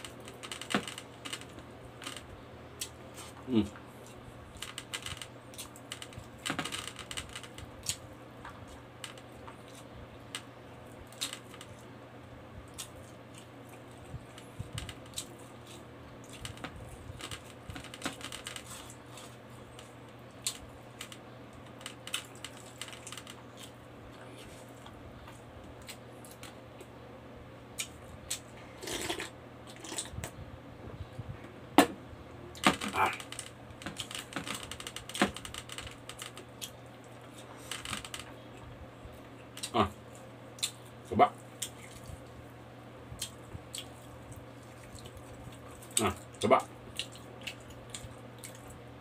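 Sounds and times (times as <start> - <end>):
steady low hum: 0.0 - 49.0
chewing and lip smacks: 43.2 - 48.8.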